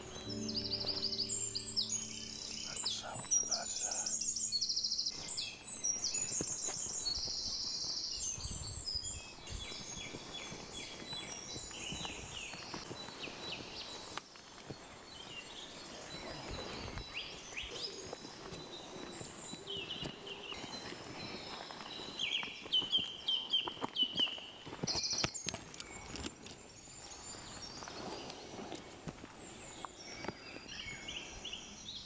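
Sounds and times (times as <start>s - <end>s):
songbirds singing: 0.0s - 32.0s.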